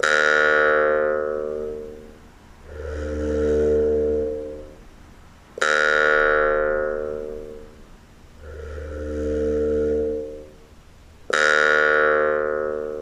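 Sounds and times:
jaw harp ringing notes: 0.0s - 4.8s, 5.6s - 7.7s, 11.3s - 13.0s.

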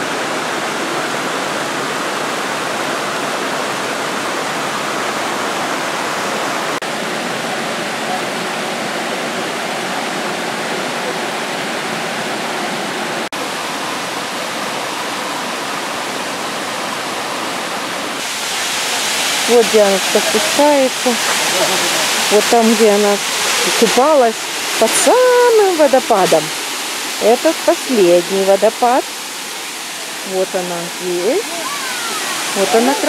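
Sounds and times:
creek water rushing over rocks: 0.0s - 33.0s.

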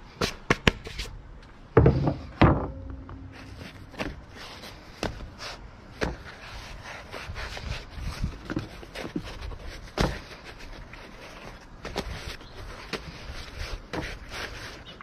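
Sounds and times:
bread rustling: 3.3s - 15.0s.

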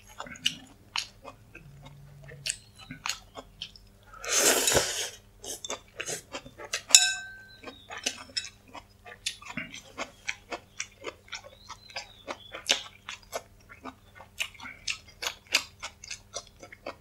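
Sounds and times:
chewing with wet mouth clicks: 0.0s - 4.0s, 5.5s - 17.0s
slurping noodles: 4.2s - 6.2s
chopsticks clinking on ceramic bowl: 6.8s - 8.6s.

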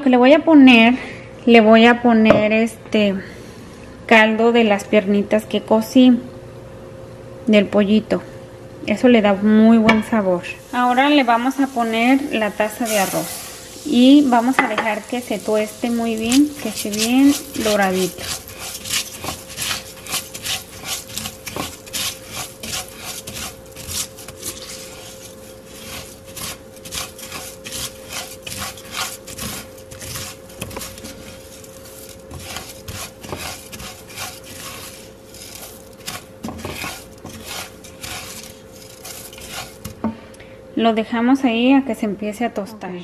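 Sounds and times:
faint steady hum: 0.0s - 43.0s
spoon scraping rice in pot: 10.8s - 40.0s.

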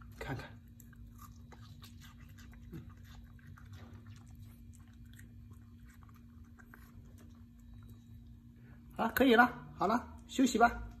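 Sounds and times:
dog chewing food: 0.0s - 8.4s
steady low hum: 0.0s - 11.0s.

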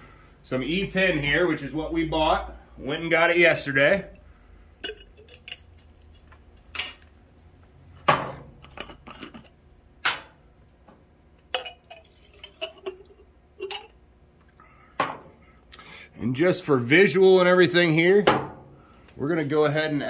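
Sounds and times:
containers clinking and knocking: 4.8s - 6.2s, 11.5s - 13.9s.

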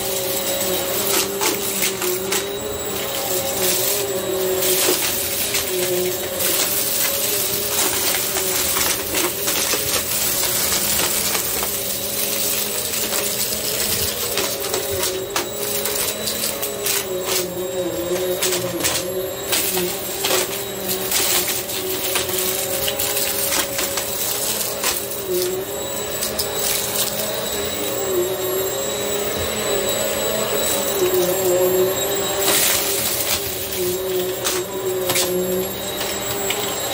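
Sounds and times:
debris rattling through vacuum: 0.0s - 36.9s
vacuum cleaner motor: 0.0s - 36.9s.

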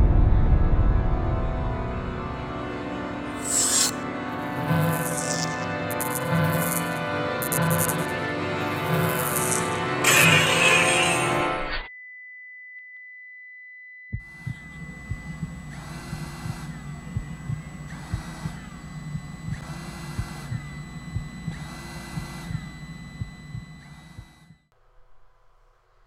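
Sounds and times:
hissing drone: 2.9s - 11.7s
sweeping chirps: 3.4s - 8.1s
steady high beep: 3.4s - 10.7s, 14.0s - 24.7s.

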